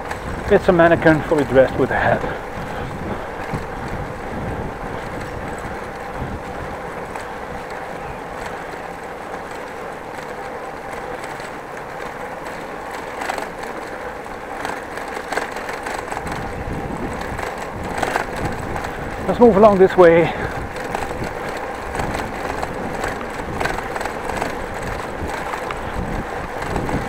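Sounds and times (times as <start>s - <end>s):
bicycle tyre rumble on pavers: 0.0s - 27.0s
bike clicks and rattles: 0.0s - 27.0s.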